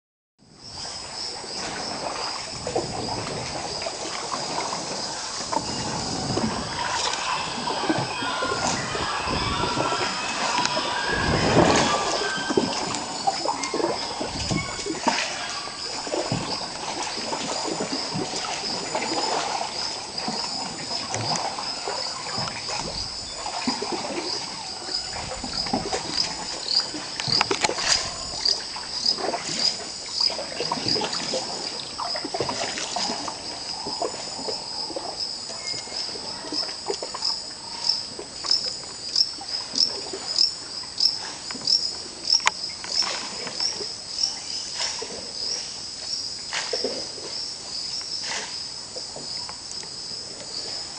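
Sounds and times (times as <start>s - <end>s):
high-pitched insect chorus: 0.6s - 50.9s
paddles splashing in water: 0.7s - 50.9s
birds calling: 3.8s - 29.1s.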